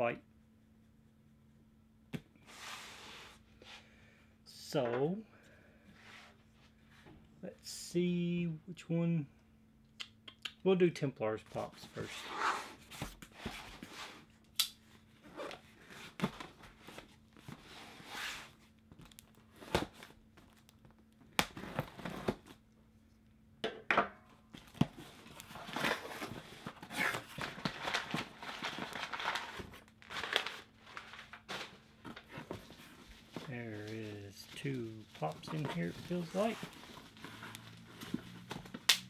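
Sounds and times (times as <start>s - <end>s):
cardboard rustling and scraping: 11.6s - 14.3s, 24.6s - 38.8s
packing tape tearing: 25.4s - 32.3s.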